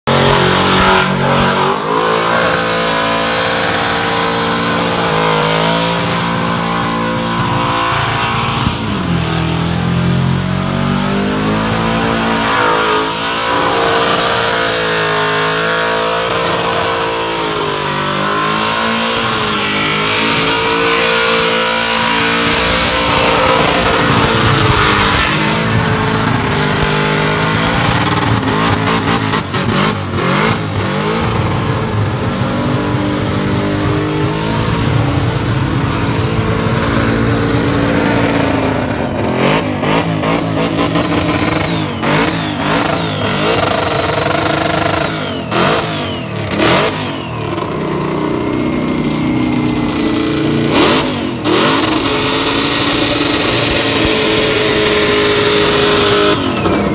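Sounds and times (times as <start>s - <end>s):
car engine revving hard: 0.0s - 56.9s
spinning tyres hissing: 41.2s - 56.9s.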